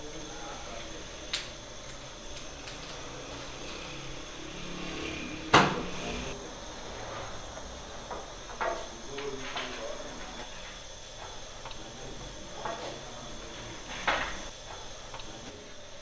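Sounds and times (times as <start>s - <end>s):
room hum: 0.0s - 16.0s.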